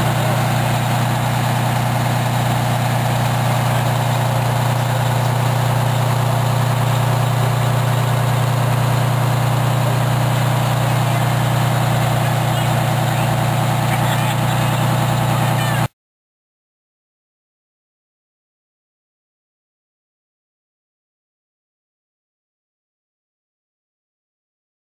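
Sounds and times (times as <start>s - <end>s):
diesel engine idling: 0.0s - 15.9s.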